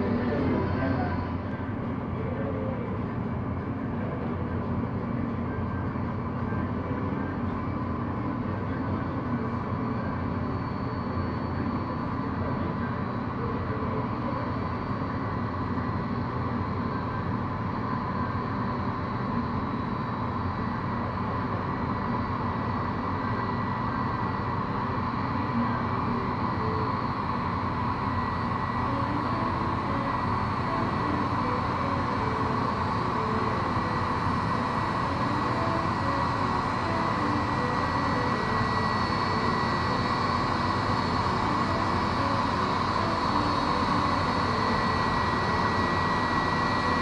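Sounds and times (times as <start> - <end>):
jet engines idling: 16.9 - 47.0.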